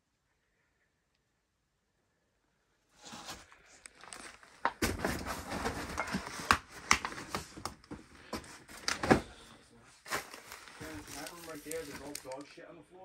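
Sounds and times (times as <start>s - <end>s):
trash and debris knocking and rustling: 4.0s - 9.5s.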